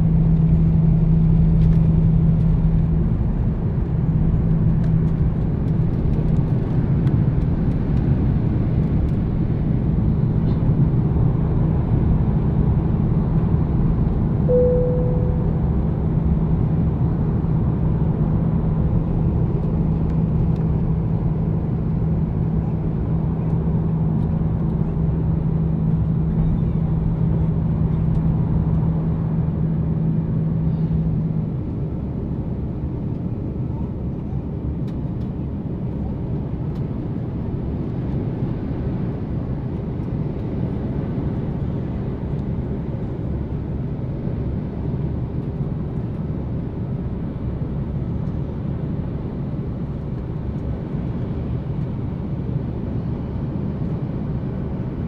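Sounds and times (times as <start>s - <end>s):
short clear tone: 14.5s - 15.7s.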